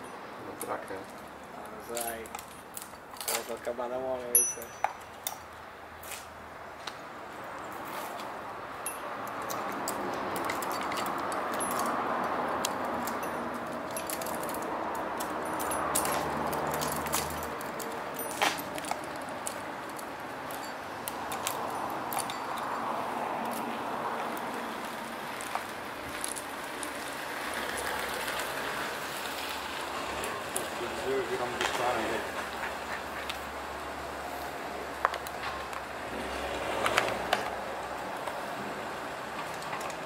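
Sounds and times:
metal chain clinking and rattling: 0:01.9 - 0:03.5, 0:04.3 - 0:05.4, 0:08.8 - 0:22.8.

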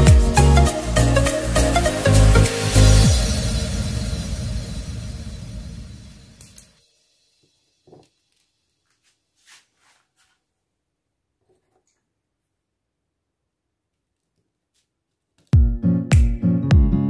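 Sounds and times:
electronic music: 0:00.0 - 0:06.6, 0:15.6 - 0:17.0
scrape on sandpaper: 0:08.8 - 0:10.5.

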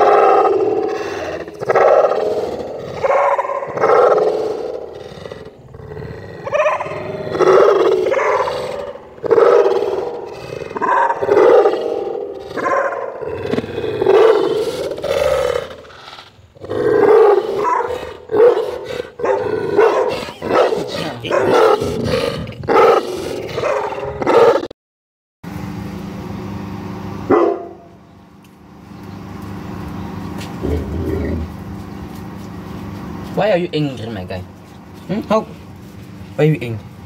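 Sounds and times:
dog growling and barking: 0:00.0 - 0:24.8, 0:30.5 - 0:31.8.

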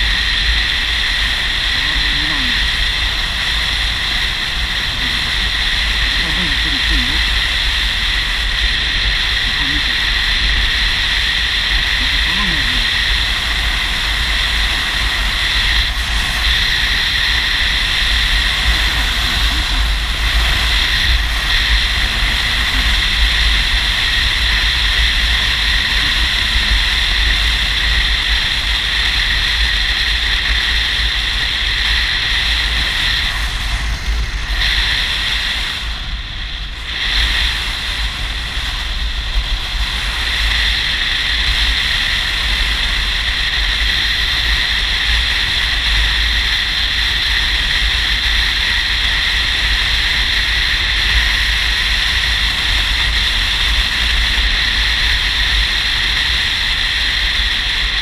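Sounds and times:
motorcycle low rumble: 0:00.0 - 0:58.0
wind rush and road noise: 0:00.0 - 0:58.0.

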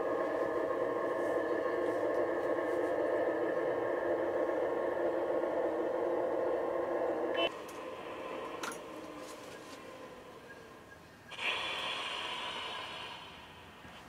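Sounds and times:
model locomotive running: 0:00.0 - 0:14.0.

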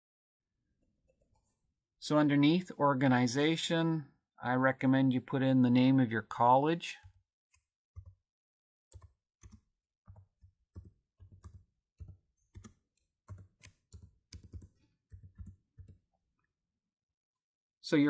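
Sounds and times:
faint keyboard typing: 0:07.0 - 0:08.2, 0:08.9 - 0:16.0.

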